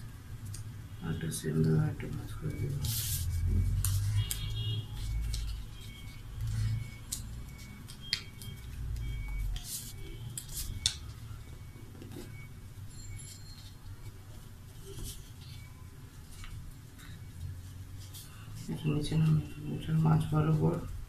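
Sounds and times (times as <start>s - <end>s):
paper rustling and crinkling: 1.7s - 11.2s, 13.2s - 19.5s.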